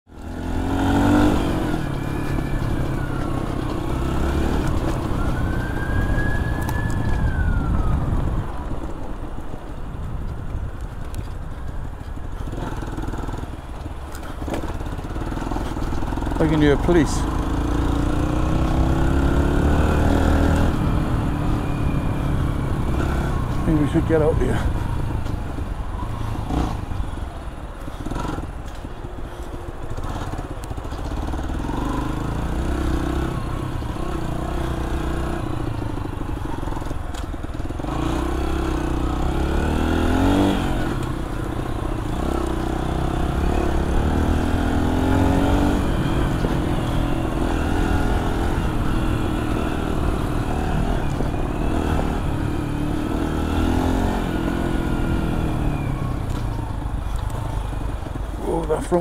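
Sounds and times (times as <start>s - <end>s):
dirt bike engine revving: 0.2s - 2.7s, 14.9s - 24.7s, 42.0s - 56.0s.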